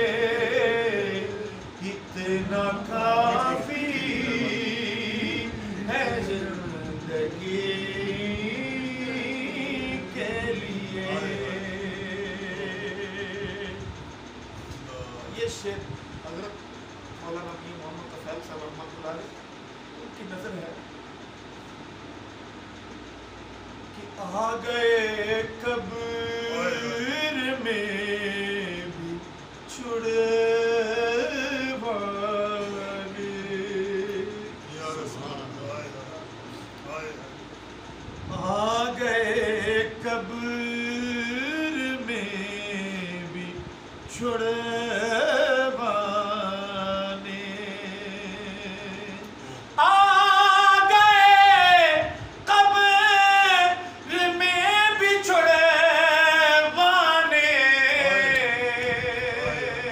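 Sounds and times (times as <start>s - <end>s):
man singing devotional song: 0.0s - 14.0s, 24.2s - 35.0s, 38.3s - 59.9s.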